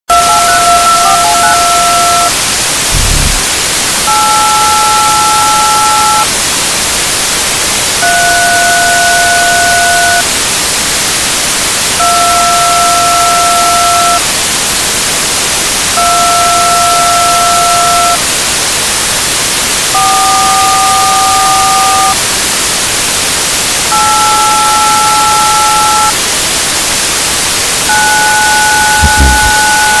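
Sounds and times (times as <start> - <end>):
static hiss: 0.1 - 30.0
low thumps: 2.9 - 3.7, 29.0 - 29.8
telephone keypad tones: 27.9 - 30.0.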